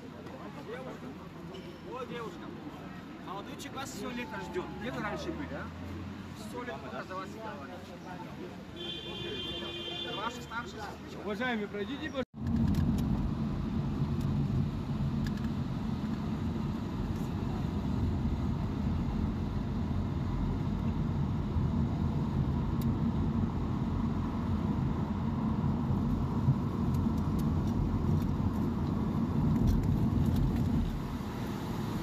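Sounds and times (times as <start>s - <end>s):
vehicle driving rumble: 12.4s - 32.0s.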